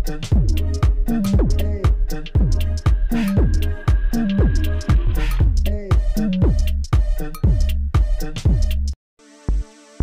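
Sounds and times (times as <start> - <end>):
bass line: 0.0 - 9.0
electronic background music: 0.1 - 6.8, 9.2 - 10.0
deep drum hits: 0.8 - 6.6.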